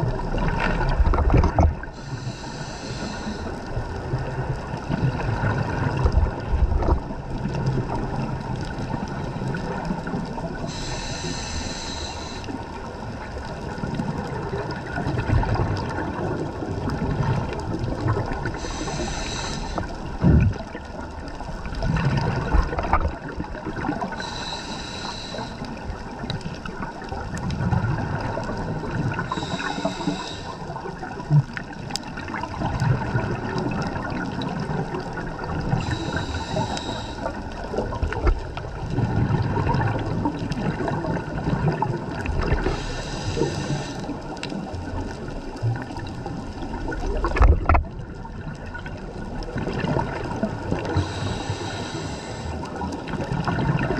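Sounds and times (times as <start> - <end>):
low underwater rumble: 0.0 - 53.9
exhaled bubbles bursting: 20.0 - 21.0, 30.8 - 36.2, 37.6 - 42.8, 46.6 - 51.1, 52.7 - 53.9.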